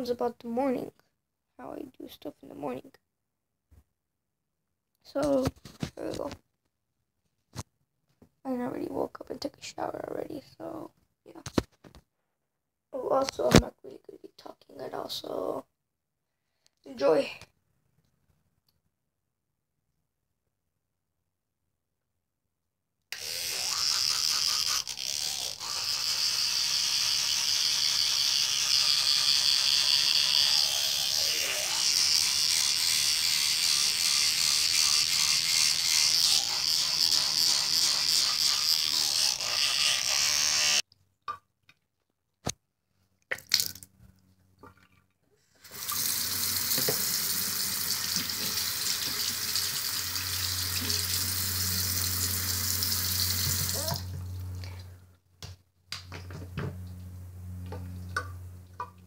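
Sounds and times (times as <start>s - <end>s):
faucet running into sink: 45.6s - 54.2s.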